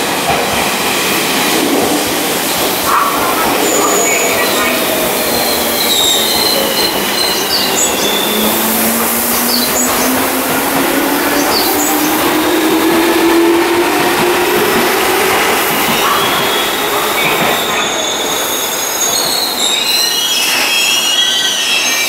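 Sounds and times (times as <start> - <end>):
train running: 0.0 - 22.0
wheel squeals: 15.9 - 22.0.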